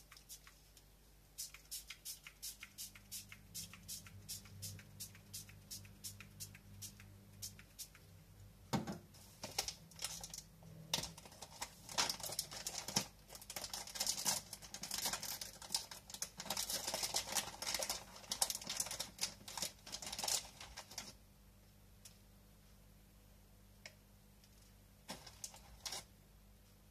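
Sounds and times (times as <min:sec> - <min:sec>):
hands crinkling plastic bag of salt: 0:11.2 - 0:21.1.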